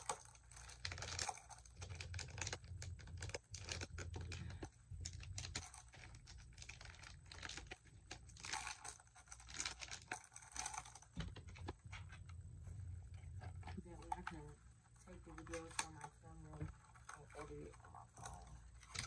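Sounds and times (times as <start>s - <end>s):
packaging pouch crinkling: 0.0s - 12.3s, 18.2s - 19.0s
steady low hum: 0.0s - 19.0s.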